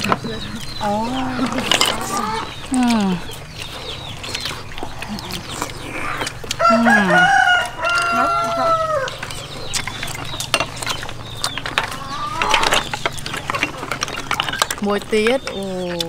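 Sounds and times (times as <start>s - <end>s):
rooster crowing: 6.6s - 9.4s.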